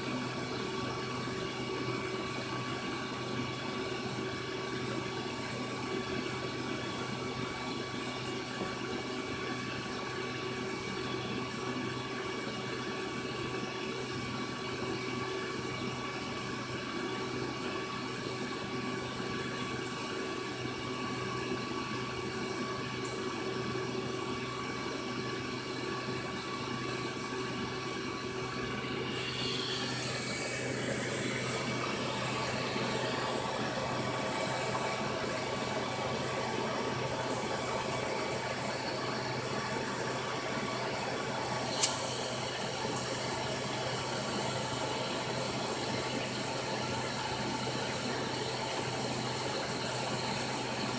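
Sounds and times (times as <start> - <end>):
aquarium filter water noise: 0.0 - 50.9.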